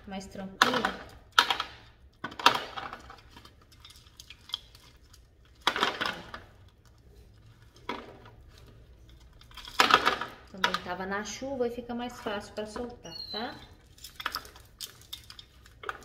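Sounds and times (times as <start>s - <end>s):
gravel rattling against pot: 13.6s - 16.0s.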